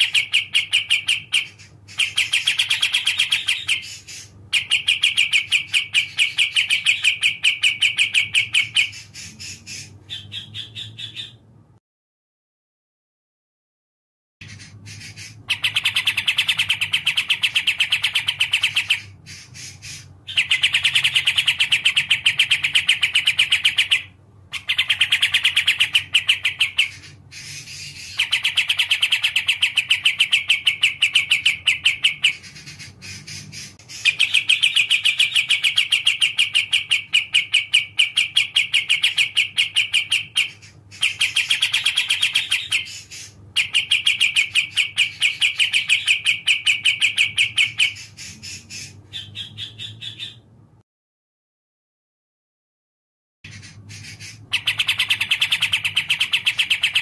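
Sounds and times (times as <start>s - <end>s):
bird chirping song: 0.0s - 11.8s, 14.4s - 50.8s, 53.5s - 57.0s.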